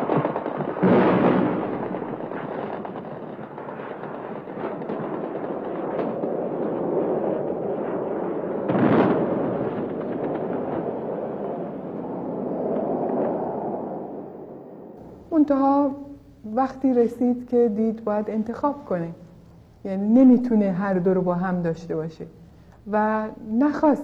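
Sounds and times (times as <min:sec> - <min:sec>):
gunfire cracks: 0:00.0 - 0:13.4
heavy explosions: 0:00.0 - 0:13.4, 0:14.4 - 0:17.4, 0:21.7 - 0:24.0
shelling rumble: 0:00.0 - 0:24.0.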